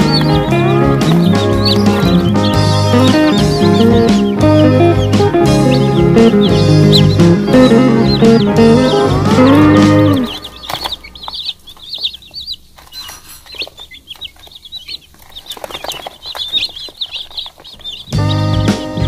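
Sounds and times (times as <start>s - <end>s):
background music: 0.0s - 11.6s, 17.9s - 19.0s
chicks peeping: 0.0s - 19.0s.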